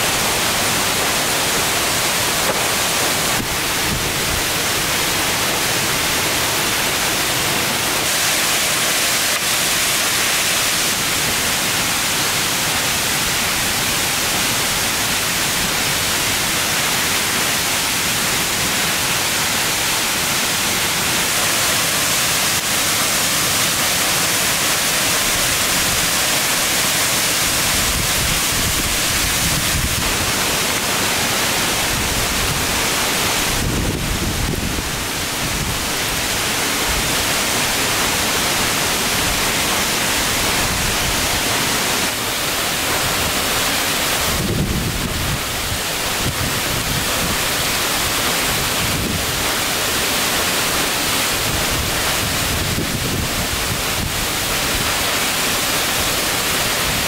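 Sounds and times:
loud steady hiss: 0:00.0 - 0:57.0.

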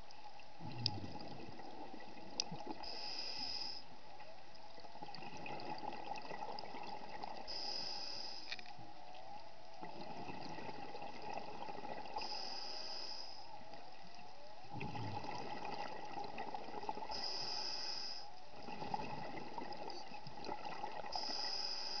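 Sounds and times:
faint crackle: 0:00.0 - 0:22.0
exhaled bubbles rushing: 0:00.6 - 0:02.8, 0:05.0 - 0:07.4, 0:14.7 - 0:17.1, 0:18.6 - 0:21.1
diver breathing underwater: 0:02.8 - 0:03.9, 0:07.5 - 0:08.6, 0:12.1 - 0:13.5, 0:16.9 - 0:19.4, 0:21.1 - 0:22.0.

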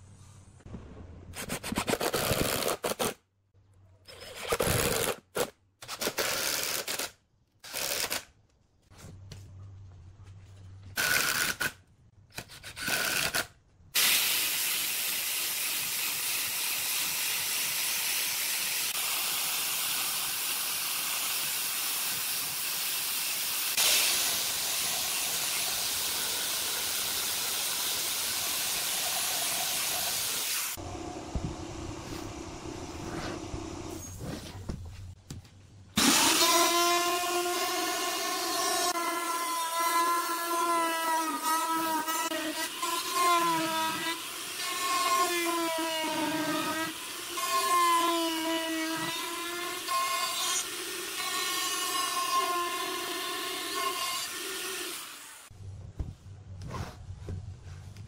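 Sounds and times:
power drill driving screws: 0:36.0 - 0:39.0.

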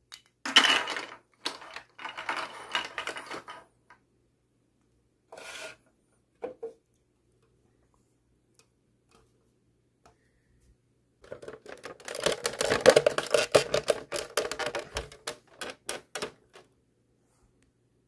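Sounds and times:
hard plastic clattering and clicking: 0:11.2 - 0:16.7.

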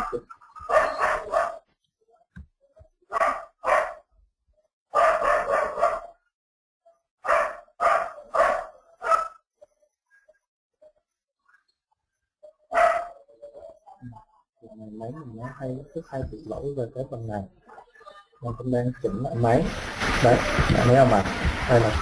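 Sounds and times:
dog barking: 0:00.0 - 0:01.7, 0:03.1 - 0:04.1, 0:04.9 - 0:06.2, 0:07.2 - 0:09.4, 0:12.7 - 0:13.7.

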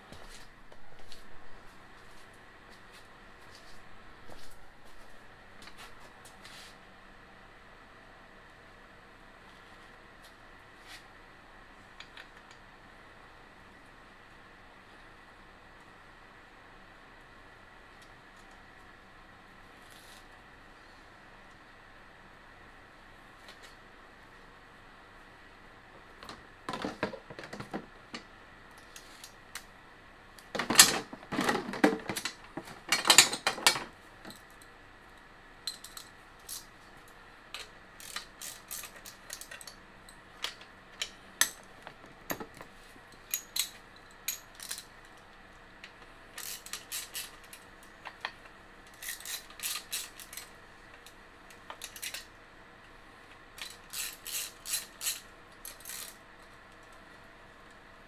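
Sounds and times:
metal parts clinking and rattling: 0:30.6 - 0:34.7, 0:35.7 - 0:36.7, 0:37.6 - 0:39.8, 0:42.3 - 0:44.9, 0:48.9 - 0:50.5, 0:51.7 - 0:52.3, 0:53.6 - 0:56.2.

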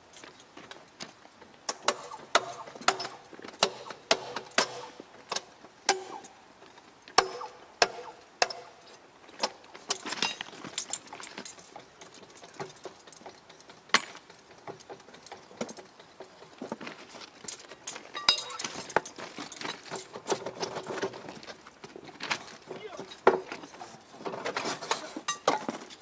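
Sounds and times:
metallic clicks of steel tools: 0:17.4 - 0:19.6.

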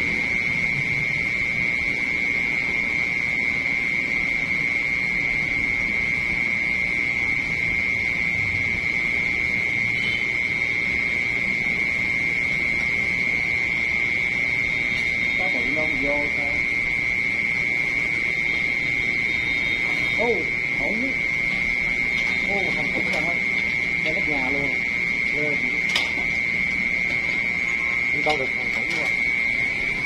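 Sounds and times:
insects trilling: 0:00.0 - 0:30.0.

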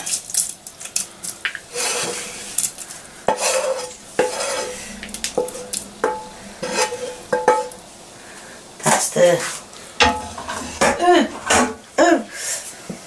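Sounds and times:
onions scraped from pan hissing: 0:00.0 - 0:13.0
ringing metal clanks: 0:03.9 - 0:08.1, 0:10.0 - 0:11.8.

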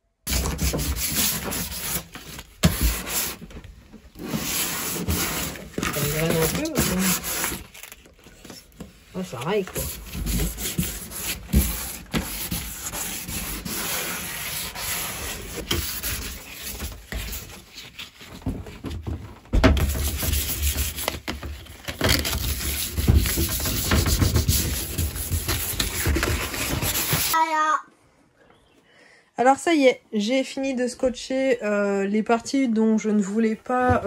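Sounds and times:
sandpaper rubbing plastic: 0:04.2 - 0:08.0, 0:09.2 - 0:18.2, 0:22.0 - 0:27.4.

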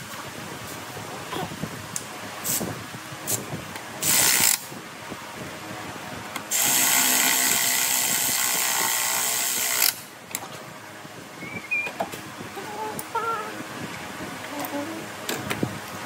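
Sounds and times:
power tool running: 0:06.5 - 0:10.1.

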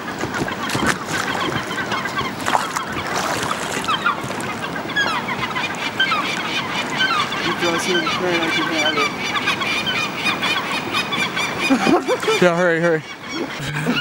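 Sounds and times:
river rapids rushing: 0:02.0 - 0:06.0.

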